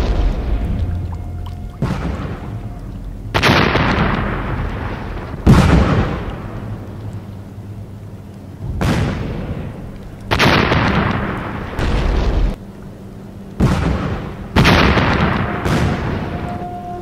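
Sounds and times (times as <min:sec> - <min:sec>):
explosive booms: 0:00.0 - 0:06.7, 0:08.6 - 0:12.6, 0:13.6 - 0:16.5.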